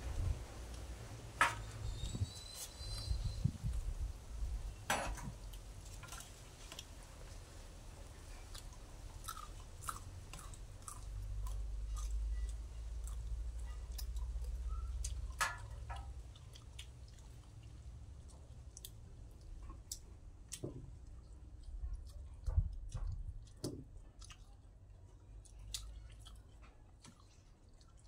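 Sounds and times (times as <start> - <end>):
people chewing and eating: 4.7 - 28.0.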